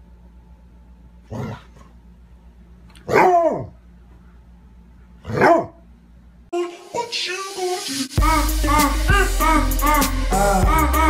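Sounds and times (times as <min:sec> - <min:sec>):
dog barking: 0:03.0 - 0:03.8, 0:05.2 - 0:05.8.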